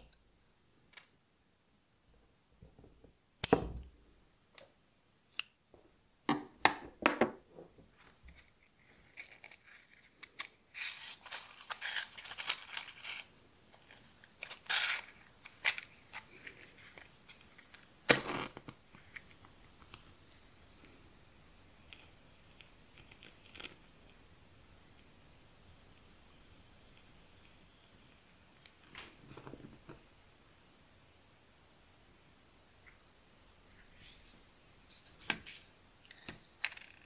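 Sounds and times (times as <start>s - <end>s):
matchbox rustling: 8.0s - 20.4s
match struck and flaring: 18.1s - 18.8s.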